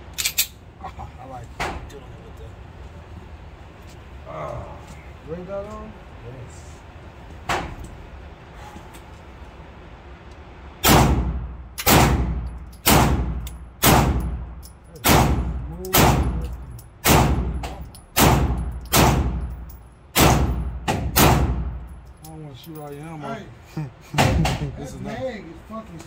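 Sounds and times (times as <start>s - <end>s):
gunshots echoing indoors: 10.8s - 14.4s, 15.0s - 21.8s.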